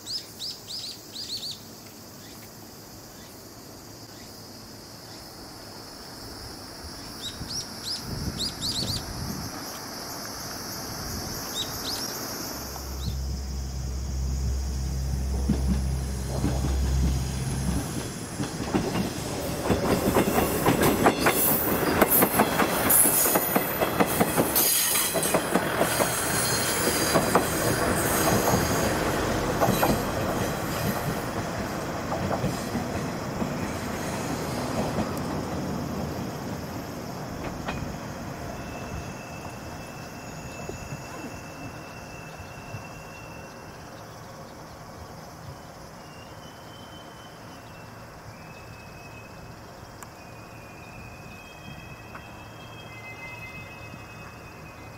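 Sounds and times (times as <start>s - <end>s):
train rolling on rails: 0.8s - 54.9s
wheels clattering over rail joints: 15.2s - 36.6s
high-pitched wheel squeals: 38.5s - 43.9s, 50.2s - 54.9s.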